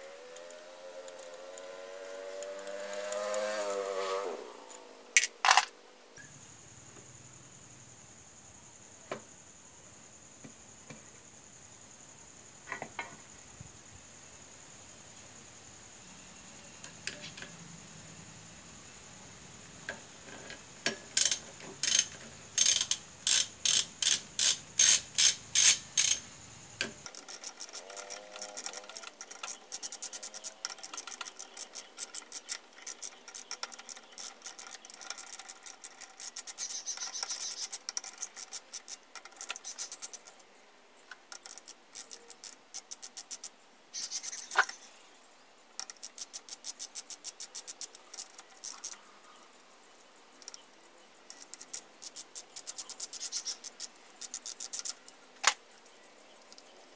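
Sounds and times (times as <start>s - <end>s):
ratchet wrench clicking: 21.2s - 26.3s, 27.0s - 40.4s, 41.3s - 44.8s, 45.8s - 49.0s, 51.3s - 55.6s.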